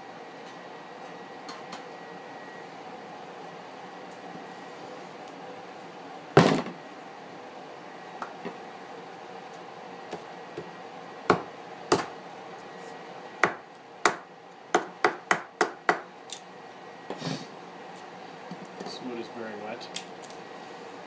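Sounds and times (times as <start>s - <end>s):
hatchet chopping wood: 13.4s - 16.0s.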